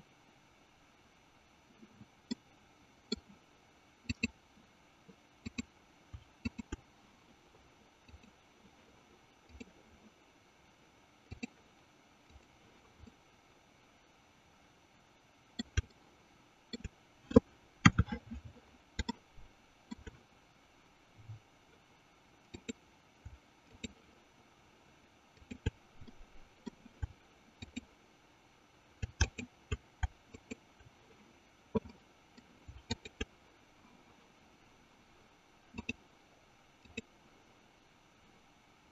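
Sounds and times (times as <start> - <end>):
computer mouse clicking: 3.1 - 3.3, 4.1 - 4.4, 5.4 - 6.8, 8.1 - 8.4, 9.5 - 9.8, 11.3 - 11.6, 12.3 - 13.2, 15.6 - 16.0, 16.7 - 18.4, 19.0 - 19.2, 19.9 - 20.2, 22.5 - 24.0, 25.4 - 27.9, 29.0 - 30.7, 31.8 - 33.3, 35.7 - 36.0, 36.8 - 37.1.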